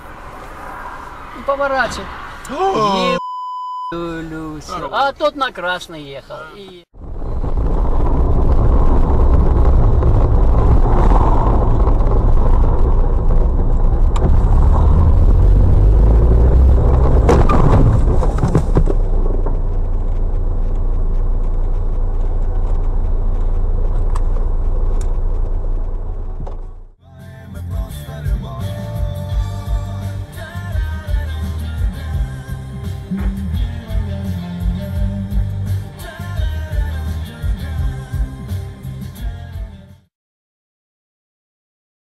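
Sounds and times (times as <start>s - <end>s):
car engine and road rumble: 0.0s - 39.8s.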